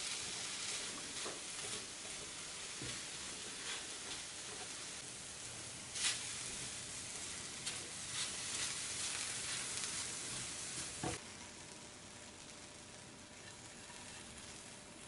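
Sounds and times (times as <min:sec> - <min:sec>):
spatula scraping a pan: 0:00.0 - 0:04.9, 0:06.0 - 0:11.2, 0:13.4 - 0:14.6
apples sizzling in a frying pan: 0:00.0 - 0:15.0.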